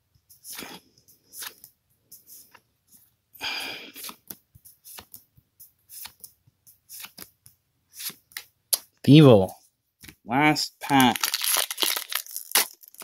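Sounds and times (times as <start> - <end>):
cards rustling: 0.4 - 2.6, 3.9 - 8.5, 10.8 - 13.0.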